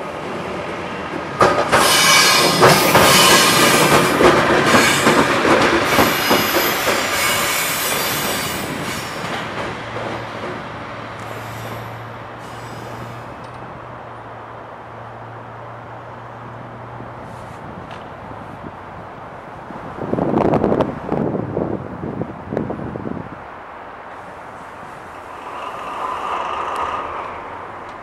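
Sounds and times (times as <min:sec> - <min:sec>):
train wheels clattering: 0:01.2 - 0:11.9
high-pitched wheel squeal: 0:01.8 - 0:03.6, 0:05.9 - 0:09.3.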